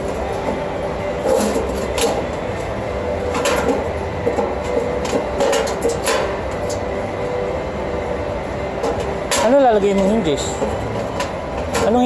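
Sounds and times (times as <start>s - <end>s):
steady machine hum: 0.0s - 12.0s
metal panels clinking: 1.2s - 2.6s, 3.2s - 6.9s, 8.8s - 12.0s.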